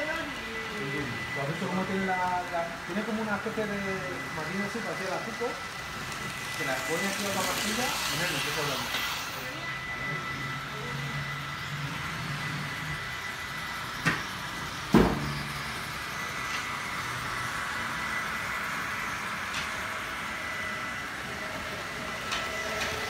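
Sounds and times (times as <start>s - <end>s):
model trains running hum: 0.0s - 23.0s.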